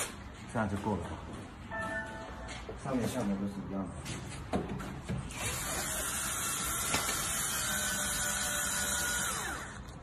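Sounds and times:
cordless drill drilling metal: 5.3 - 10.0.

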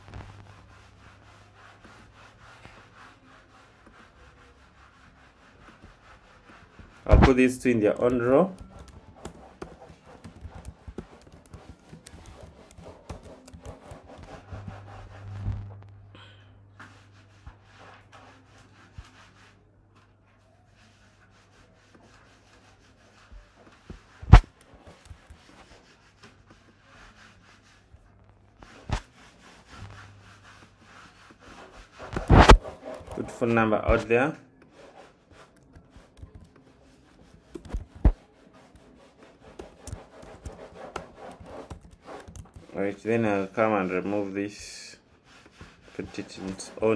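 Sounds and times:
faint low hum: 14.2 - 16.8.

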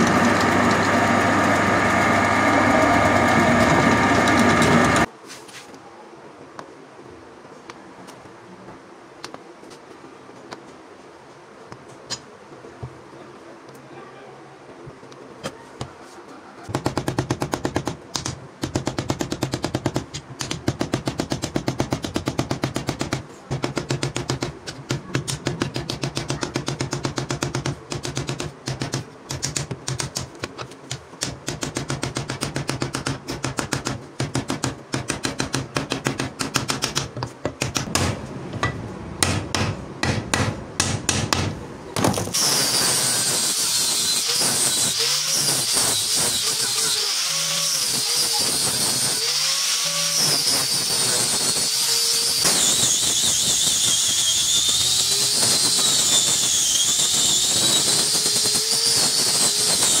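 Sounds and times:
angle grinder grinding wood: 0.0 - 5.1.

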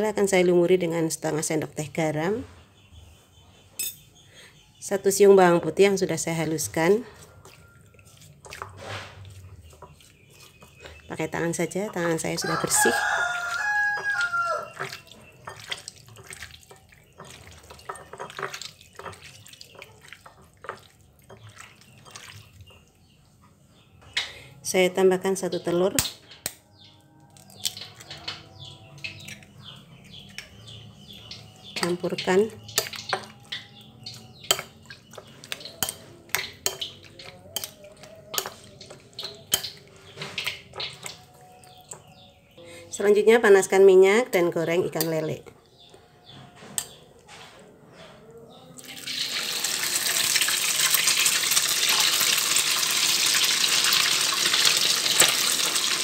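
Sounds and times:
metal spoon clinking on glass bowl: 3.8 - 4.1, 13.3 - 21.4, 32.7 - 39.8
rooster crowing: 12.4 - 14.9
hand squishing raw fish: 13.0 - 22.6.

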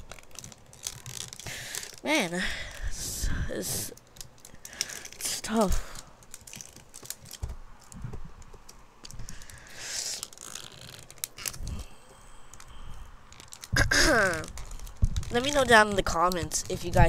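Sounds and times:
fingernails scratching plastic wrap: 0.0 - 2.0, 9.2 - 11.7, 13.3 - 17.0.

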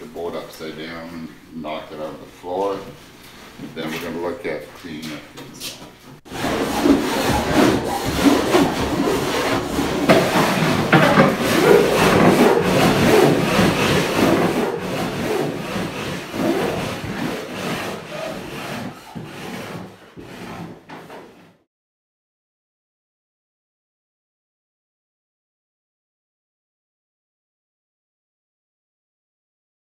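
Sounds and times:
hand file scraping fibreglass: 5.6 - 21.6.

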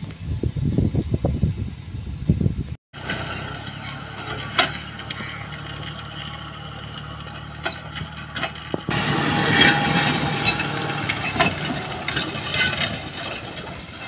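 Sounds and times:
tractor diesel engine running: 3.0 - 14.0.

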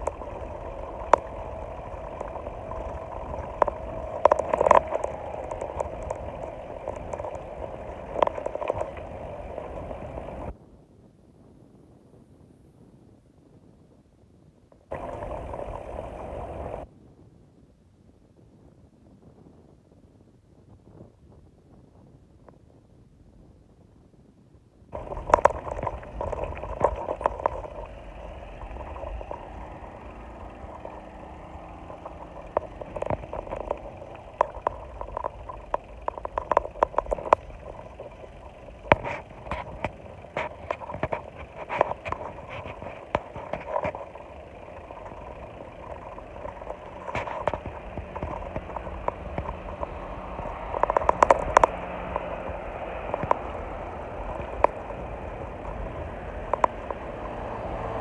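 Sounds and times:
road rumble: 0.0 - 10.6, 14.9 - 16.9, 24.9 - 58.0
sharp rattles and clicks: 0.0 - 10.6, 14.9 - 16.8, 25.0 - 58.0
wind buffeting: 0.0 - 10.6, 14.9 - 16.9, 24.9 - 58.0.

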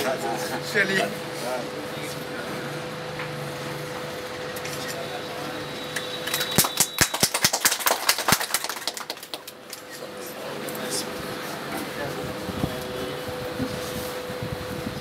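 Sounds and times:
small group clapping: 5.9 - 10.0.

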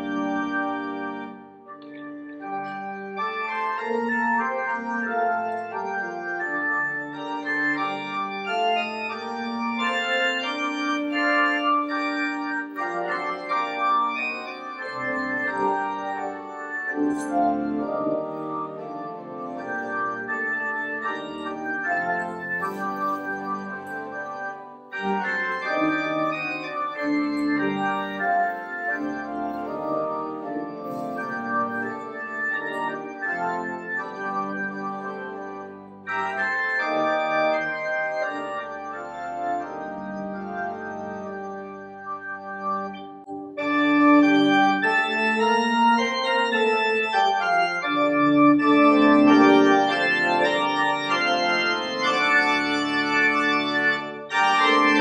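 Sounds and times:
church organ playing chords: 0.0 - 55.0.

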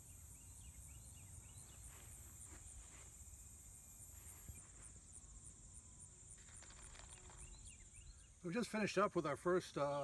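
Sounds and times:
insects chirring: 0.0 - 10.0
bird twittering: 6.5 - 8.5.

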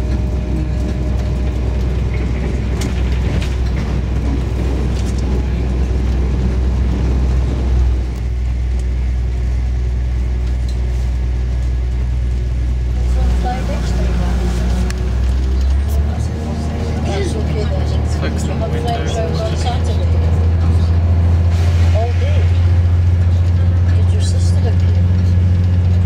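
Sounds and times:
train rumbling on tracks: 0.0 - 26.0.

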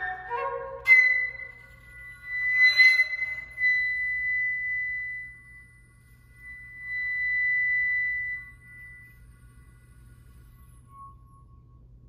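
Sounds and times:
flute holding high notes: 0.0 - 5.6.

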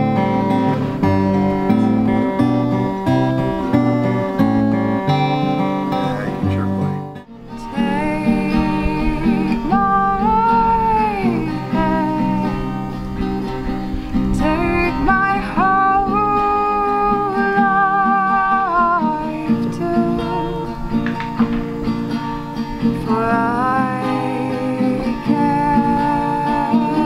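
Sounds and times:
acoustic guitar: 0.0 - 27.0
woman singing: 7.5 - 21.4, 22.8 - 27.0.

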